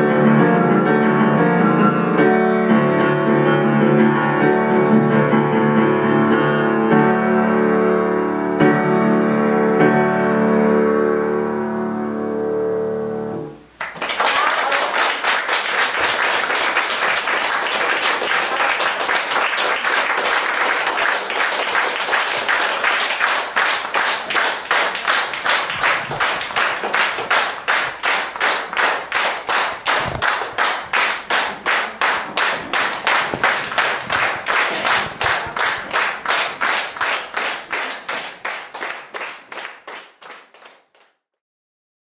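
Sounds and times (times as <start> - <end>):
audience applause: 13.8 - 41.2
rhythmic clapping in unison: 13.8 - 41.2.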